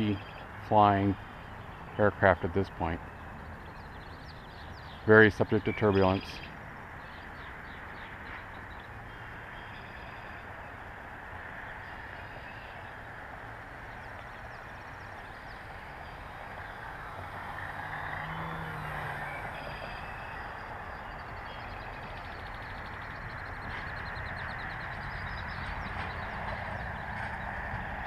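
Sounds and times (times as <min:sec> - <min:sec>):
model plane motor droning: 0:14.5 - 0:23.2.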